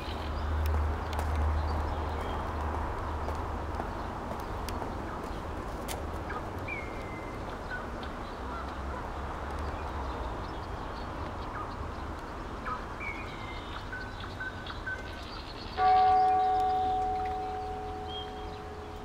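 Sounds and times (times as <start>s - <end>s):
bird chirps: 6.2s - 9.0s, 9.6s - 19.0s.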